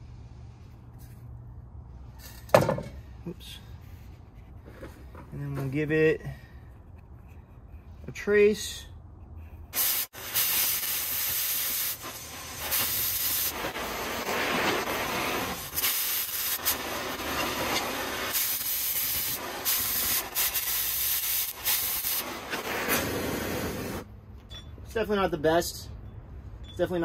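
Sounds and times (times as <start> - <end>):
cutting torch hissing: 9.7 - 24.1.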